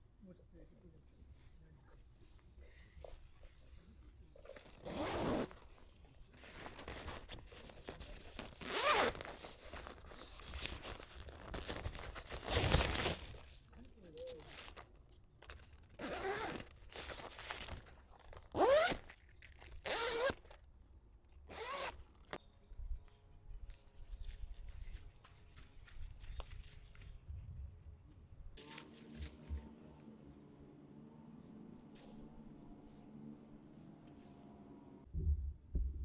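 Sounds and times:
tent zipper pulled: 4.5s - 13.6s, 15.8s - 20.6s, 21.4s - 22.4s.

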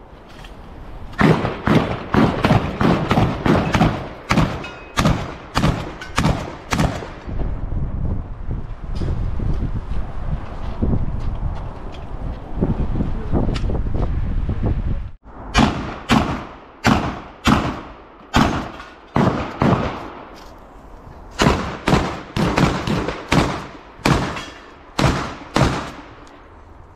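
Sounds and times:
wind noise on microphone: 0.0s - 26.9s
gunshots hitting steel targets: 1.2s - 7.3s, 15.5s - 20.4s, 21.4s - 26.2s.

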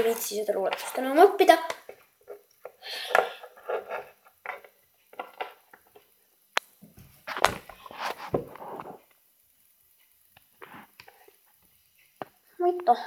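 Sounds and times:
plastic toys tapping and clicking: 0.1s - 6.7s.

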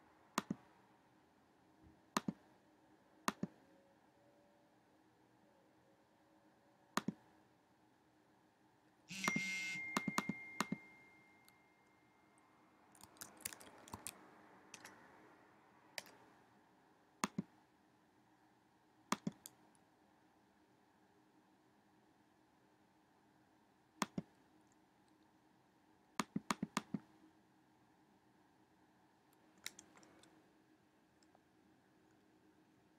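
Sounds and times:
computer mouse clicking: 0.4s - 0.6s, 2.2s - 2.4s, 3.3s - 3.6s, 7.0s - 7.2s, 9.2s - 11.6s, 13.0s - 15.0s, 16.0s - 16.2s, 17.2s - 17.5s, 19.1s - 19.8s, 24.0s - 24.4s, 26.2s - 27.1s, 29.6s - 30.3s
sudden sound with high ringing: 9.2s - 12.3s.

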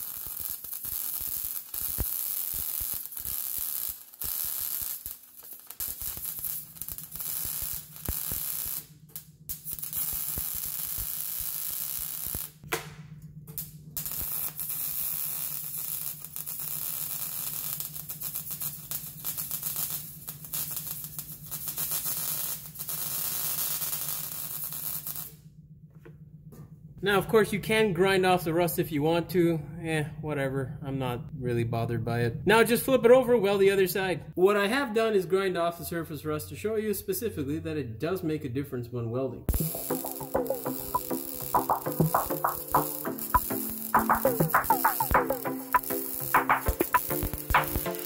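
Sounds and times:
welder arc crackling and hissing: 0.0s - 12.6s, 13.6s - 25.4s, 39.5s - 48.0s.

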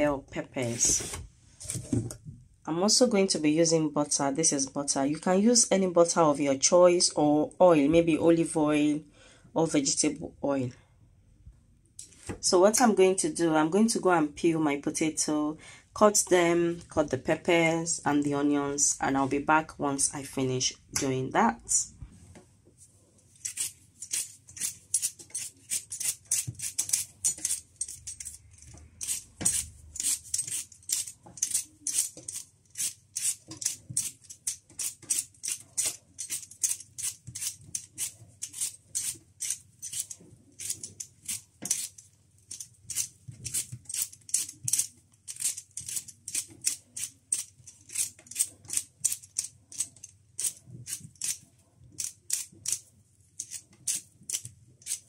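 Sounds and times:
peeler scraping potatoes: 23.4s - 55.0s.

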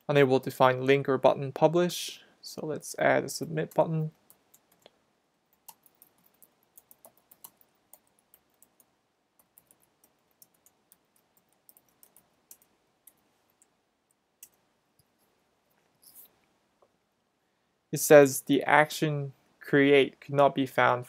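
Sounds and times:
computer keyboard typing: 3.4s - 4.9s, 5.5s - 13.7s.

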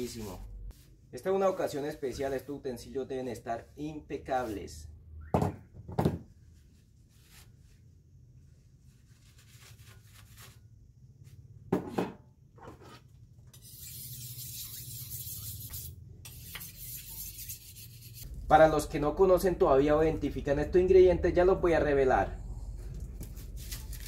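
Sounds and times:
paper towel rubbing a wok: 0.0s - 2.9s, 6.6s - 10.7s, 13.6s - 18.3s
knife on sharpening steel: 13.6s - 18.3s.

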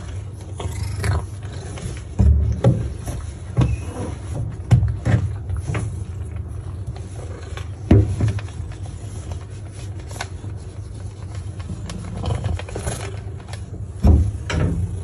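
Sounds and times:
lint roller scraping over fur: 0.0s - 15.0s.

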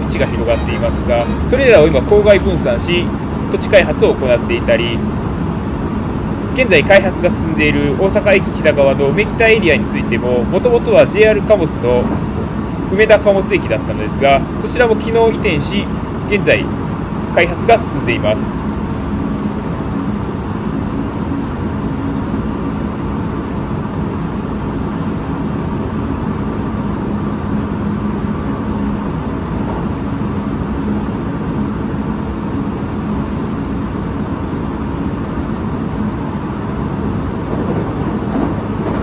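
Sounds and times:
train wheels rumbling on rail: 0.0s - 3.5s, 22.6s - 39.0s.

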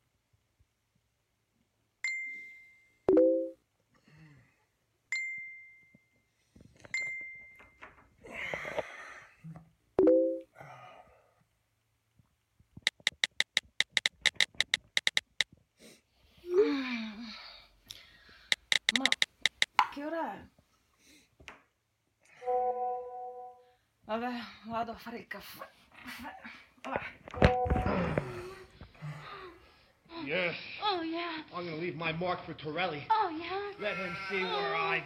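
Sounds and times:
phone notification dings: 2.1s - 3.6s, 10.0s - 10.4s
rapid sharp clicks: 12.8s - 15.5s, 18.5s - 19.8s.

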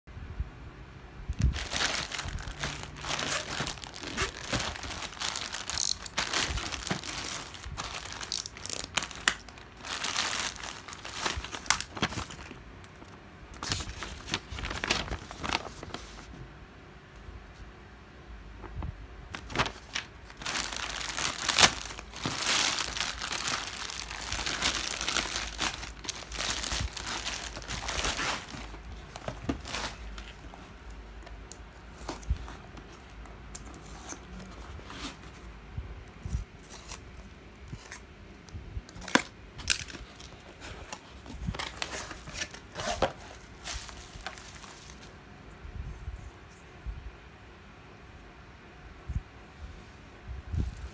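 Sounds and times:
bubble wrap crackles and clicks: 1.4s - 16.0s, 18.6s - 32.8s, 38.9s - 45.2s
packaging crinkling and tearing: 1.4s - 16.3s, 18.7s - 30.9s, 38.9s - 45.2s.

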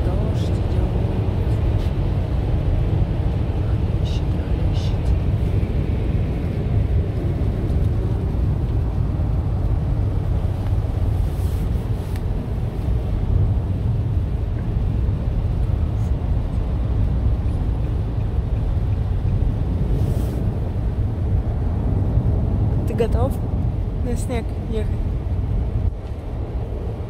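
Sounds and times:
car driving road and engine noise: 0.0s - 27.0s.

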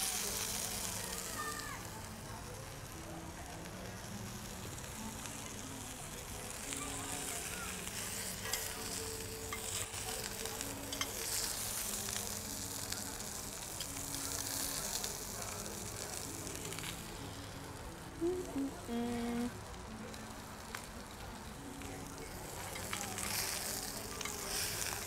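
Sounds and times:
meat sizzling in a skillet: 0.0s - 18.9s, 19.5s - 25.0s
metal tongs clicking on pan: 9.5s - 11.5s.

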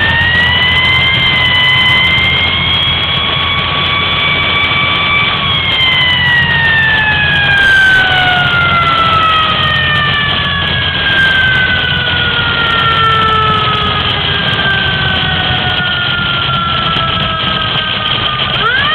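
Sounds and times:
fire engine siren winding down: 0.0s - 18.9s
fire truck engine: 0.0s - 18.9s
road noise: 0.0s - 18.9s.

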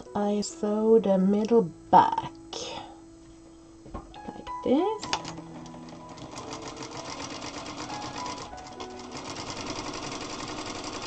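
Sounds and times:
sewing machine stitching: 5.0s - 11.0s.

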